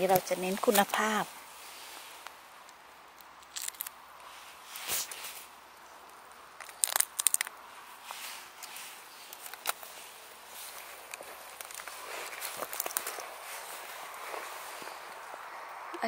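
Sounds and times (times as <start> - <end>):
mushrooms snapping off log: 2.2 - 4.3, 6.1 - 7.6.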